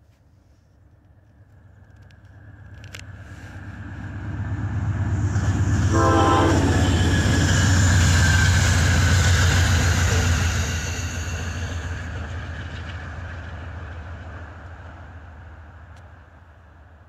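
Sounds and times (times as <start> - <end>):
locomotive engine rumble: 1.6 - 13.6
train horn blast: 5.8 - 7.4.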